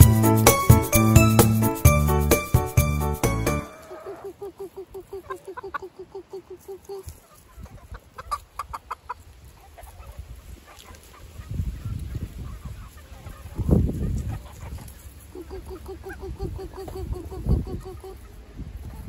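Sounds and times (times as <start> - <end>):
chickens clucking: 3.2 - 19.0.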